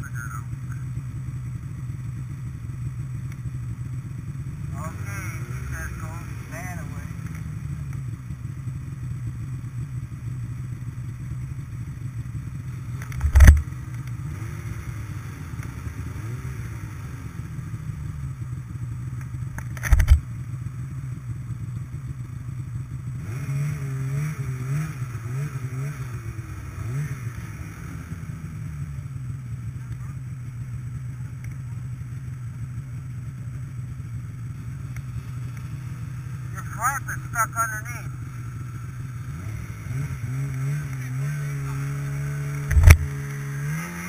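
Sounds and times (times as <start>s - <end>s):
snowmobile engine idling and revving: 0.0s - 44.0s
sharp thumps: 13.0s - 13.7s, 19.6s - 20.2s, 41.9s - 43.4s.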